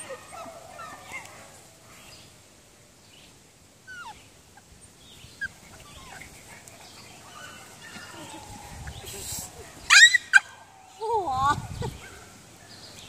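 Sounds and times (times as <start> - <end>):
puppies yipping and whining: 3.9 - 4.7, 5.4 - 9.1, 9.8 - 10.6.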